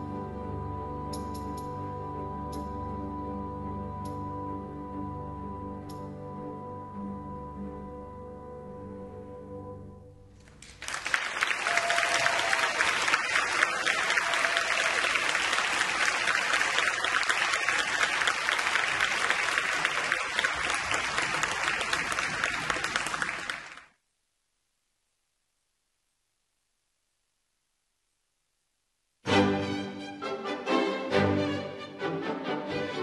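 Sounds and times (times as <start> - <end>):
audience applauding: 10.4 - 24.0.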